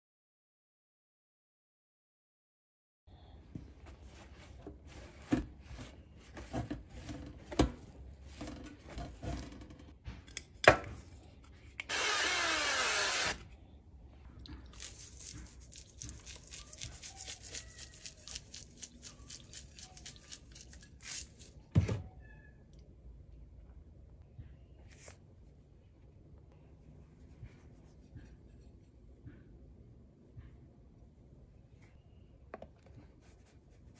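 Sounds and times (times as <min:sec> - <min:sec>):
paper towel patting fish: 0:14.7 - 0:21.5.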